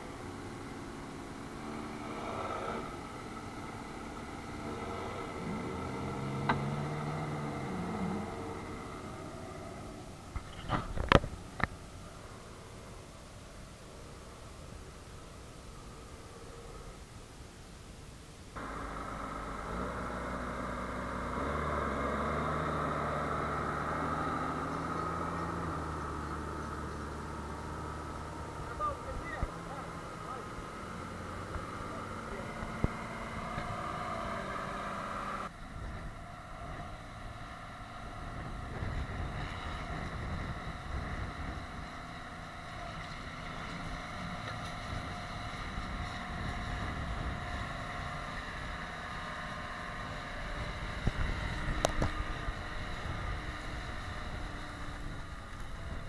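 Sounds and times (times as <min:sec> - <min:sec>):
tractor diesel engines under load: 0:00.0 - 0:56.0.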